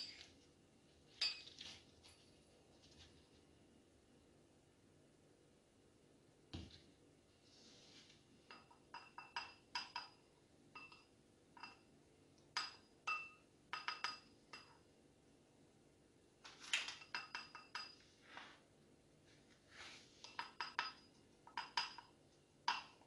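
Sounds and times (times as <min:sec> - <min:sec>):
spoon clinking against glass bowl: 0:01.2 - 0:01.6, 0:08.5 - 0:11.9, 0:12.5 - 0:14.8, 0:17.0 - 0:18.0, 0:20.2 - 0:23.0.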